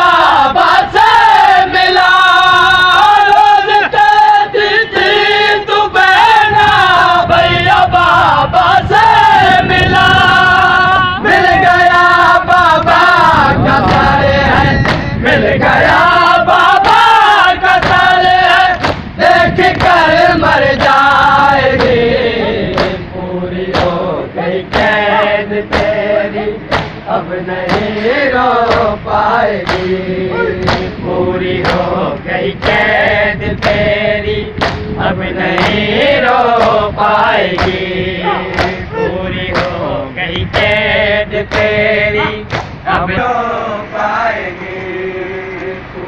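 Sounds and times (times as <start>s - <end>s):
men chanting in unison: 0.0s - 46.0s
hands slapping chest: 18.8s - 19.0s, 26.7s - 27.0s, 29.6s - 29.9s, 34.6s - 34.8s.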